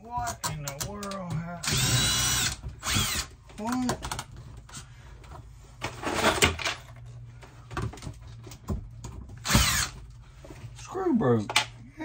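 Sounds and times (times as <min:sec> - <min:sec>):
power drill driving a screw: 0:01.6 - 0:03.3, 0:09.4 - 0:10.0
knocks and handling: 0:02.4 - 0:10.8.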